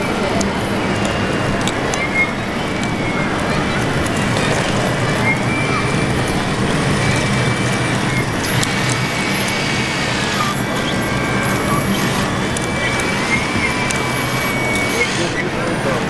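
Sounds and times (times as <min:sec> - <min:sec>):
busy exhibition hall din: 0:00.0 - 0:16.0
model bulldozer motor drone: 0:00.0 - 0:16.0
thin high whine: 0:00.0 - 0:16.0.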